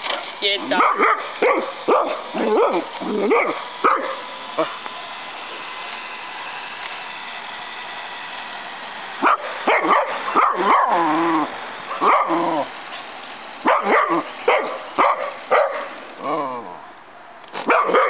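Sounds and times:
toy helicopter motor humming: 0.0s - 18.0s
dog yelping and whining: 0.7s - 4.2s, 9.2s - 13.0s
dog barking: 0.8s - 4.2s, 9.2s - 11.0s, 11.9s - 12.4s, 13.6s - 15.9s, 17.7s - 18.0s.

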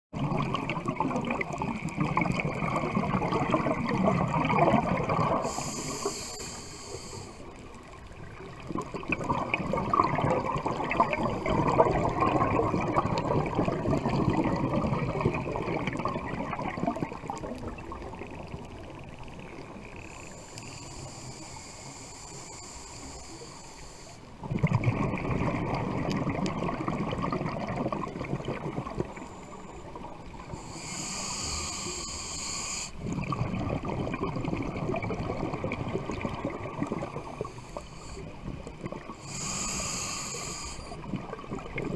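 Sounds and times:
exhaled bubbles gurgling underwater: 0.1s - 41.9s
regulator hissing inhale: 5.3s - 7.8s, 20.0s - 24.4s, 29.0s - 33.2s, 37.3s - 41.1s.

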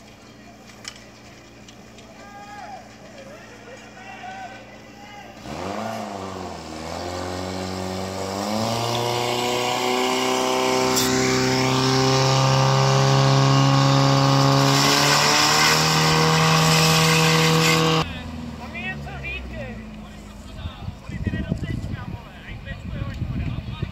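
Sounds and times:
pump engine at high revs: 5.3s - 19.5s.

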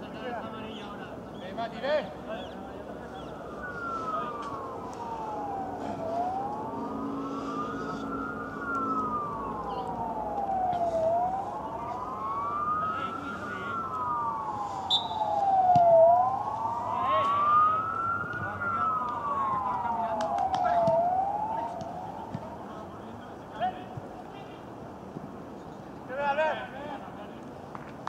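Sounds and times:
emergency vehicle siren wailing: 2.1s - 23.7s.

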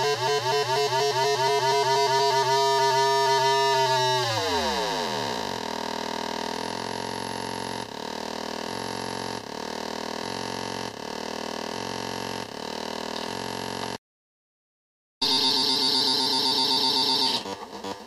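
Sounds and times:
buzzy square-wave drone sweeping: 0.0s - 6.2s, 15.2s - 17.5s.

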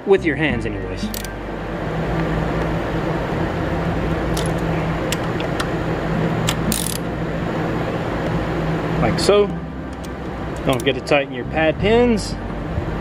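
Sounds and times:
steady background hum: 0.0s - 13.0s
socket ratchet clicking: 1.1s - 1.4s, 4.3s - 5.7s, 6.4s - 7.1s, 9.9s - 11.0s.

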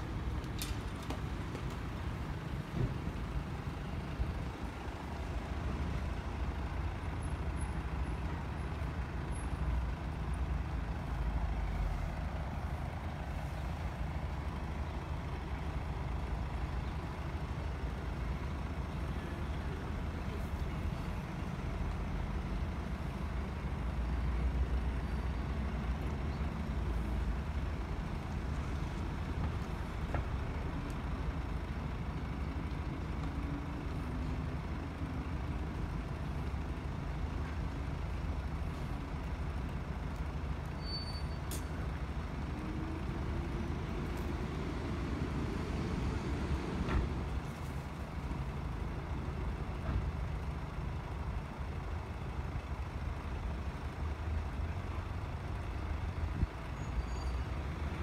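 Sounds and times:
road vehicles rumbling: 0.0s - 58.0s.

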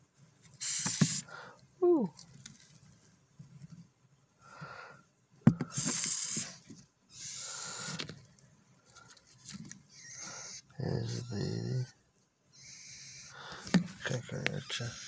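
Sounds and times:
cockroaches hissing: 0.6s - 1.3s, 5.7s - 8.1s, 9.9s - 11.8s, 12.6s - 15.0s.

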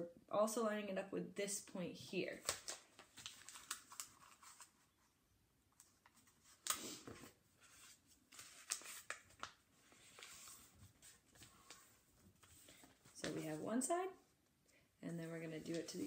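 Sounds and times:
paper rustling and crinkling: 2.3s - 5.1s, 5.8s - 13.7s, 15.2s - 16.0s.

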